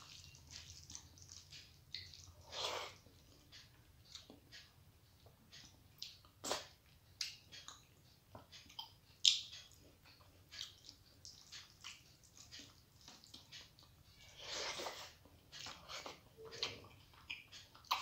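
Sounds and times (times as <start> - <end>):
wet mouth smacks and chewing: 8.6 - 13.9, 15.6 - 18.0.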